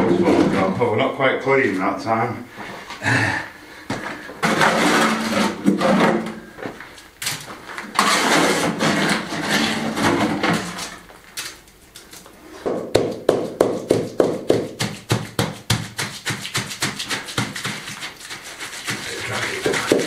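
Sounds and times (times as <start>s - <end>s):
fast wooden knocks tamping: 12.7s - 20.0s.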